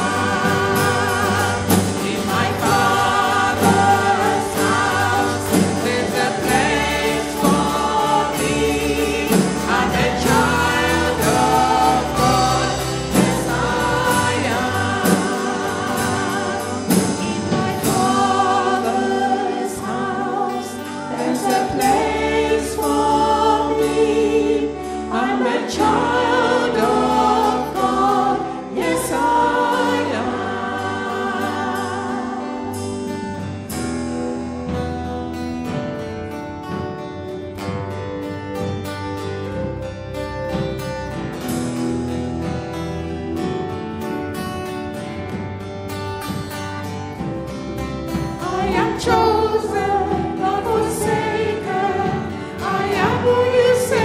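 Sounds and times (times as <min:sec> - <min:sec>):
voices singing together: 0:00.0 - 0:33.2, 0:48.1 - 0:54.0
acoustic guitar: 0:00.0 - 0:54.0
drums: 0:00.0 - 0:54.0
electric guitar: 0:00.0 - 0:54.0.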